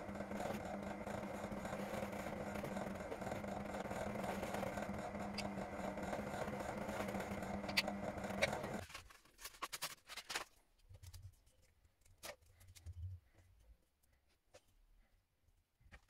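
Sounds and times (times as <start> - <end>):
power tool motor humming: 0.0 - 8.8.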